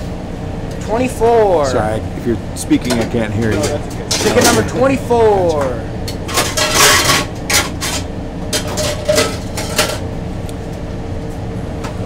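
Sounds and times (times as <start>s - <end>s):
steady hum: 0.0s - 12.0s
utensils and containers clinking: 2.8s - 10.1s.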